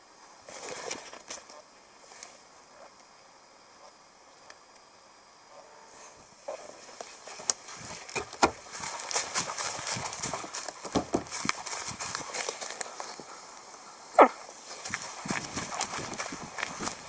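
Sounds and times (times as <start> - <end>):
footsteps crunching on forest path: 6.2 - 17.0.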